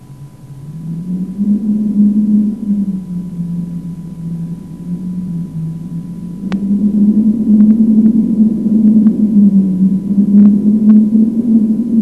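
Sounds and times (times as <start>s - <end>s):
faint ticks: 6.4s - 6.8s.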